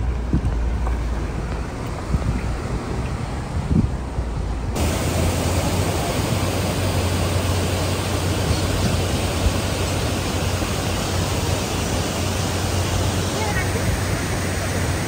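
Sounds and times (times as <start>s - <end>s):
waterfall rushing over rocks: 4.8s - 15.0s.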